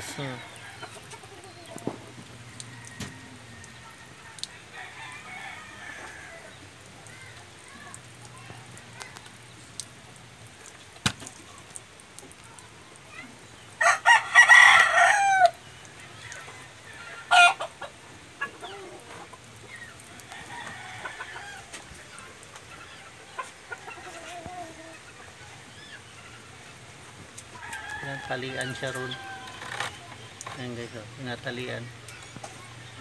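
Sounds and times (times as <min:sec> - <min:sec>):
rooster crowing: 0:00.0 - 0:06.6, 0:13.8 - 0:15.6, 0:20.2 - 0:21.8, 0:27.5 - 0:30.2
chicken calls: 0:00.0 - 0:09.6, 0:13.1 - 0:33.0.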